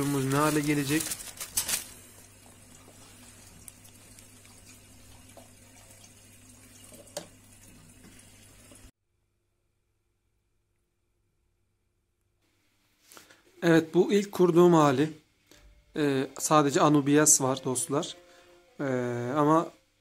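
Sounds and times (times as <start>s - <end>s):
running water: 0.0s - 8.9s.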